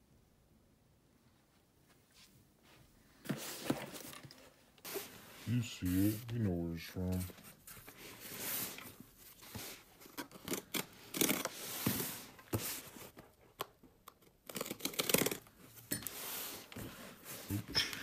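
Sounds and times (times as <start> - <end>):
cardboard box scraping and rustling: 3.3 - 6.2.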